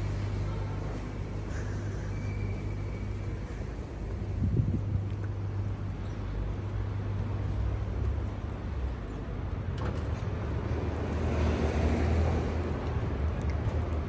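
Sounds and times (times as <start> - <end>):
city traffic rumble: 0.0 - 14.0
vehicle passing: 10.4 - 14.0.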